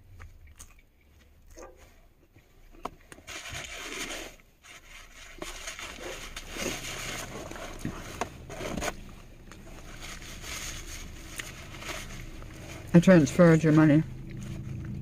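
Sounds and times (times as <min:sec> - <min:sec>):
paper rustling and crinkling: 0:03.2 - 0:14.7.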